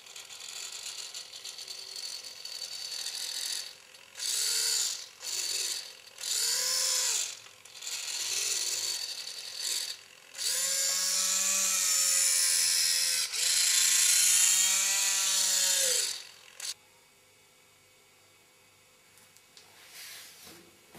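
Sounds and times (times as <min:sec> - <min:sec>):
servo motor whining: 0:00.0 - 0:16.8.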